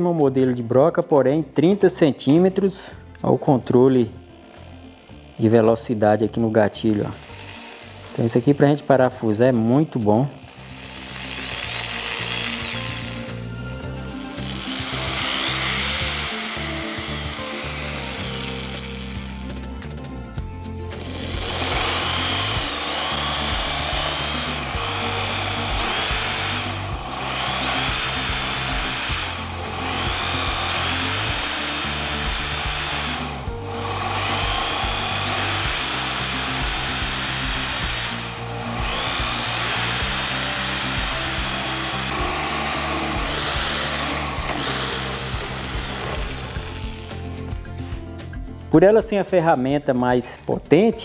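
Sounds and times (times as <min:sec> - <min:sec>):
background music: 0:00.0 - 0:51.0
drill boring into wood: 0:04.3 - 0:20.0, 0:20.9 - 0:48.0.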